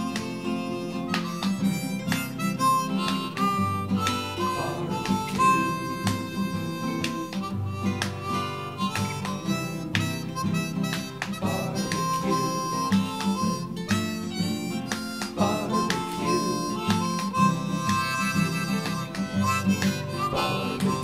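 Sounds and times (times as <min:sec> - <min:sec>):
music with plucked rhythm: 0:00.0 - 0:21.0.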